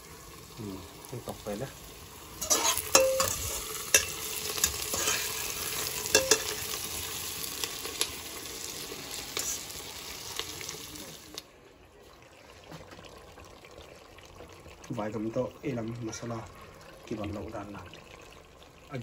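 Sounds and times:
meat sizzling in a pot: 0.0s - 11.5s, 12.7s - 19.0s
metal spoon clinking on a pot: 2.4s - 5.3s, 6.1s - 6.6s.

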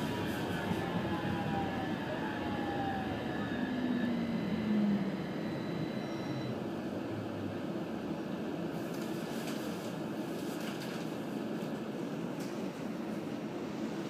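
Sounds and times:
wheels rumbling on rail: 0.0s - 5.2s
electric drive whine: 0.1s - 6.6s.

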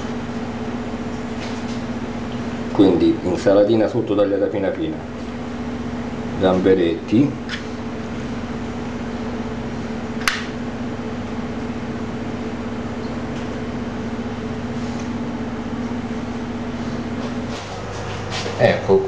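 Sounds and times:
machine hum: 0.0s - 19.0s
sharp click: 10.2s - 10.6s.

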